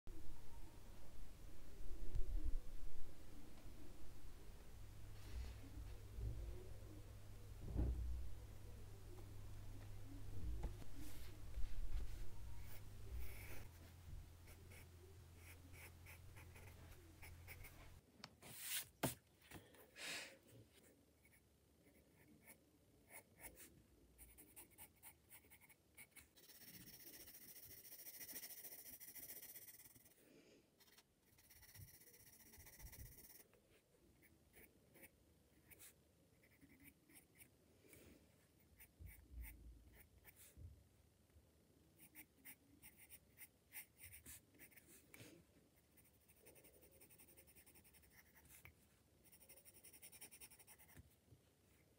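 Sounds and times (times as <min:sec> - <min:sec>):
pencil scratching on paper: 0:11.0 - 0:19.2, 0:21.2 - 0:30.2, 0:30.8 - 0:33.5, 0:34.2 - 0:37.5, 0:42.0 - 0:45.2, 0:45.8 - 0:51.0.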